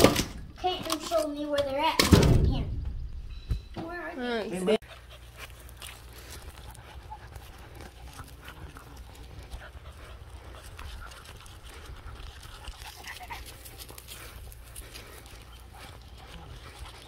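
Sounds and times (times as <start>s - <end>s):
dog panting: 4.6s - 17.0s
footsteps on gravel: 5.0s - 17.0s.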